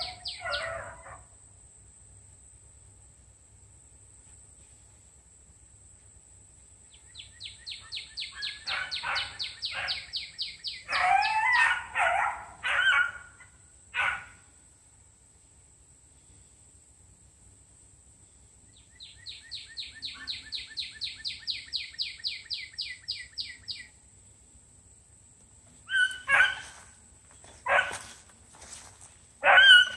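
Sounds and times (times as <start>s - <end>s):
high falling animal chirps: 25.8s - 26.9s, 29.4s - 29.9s.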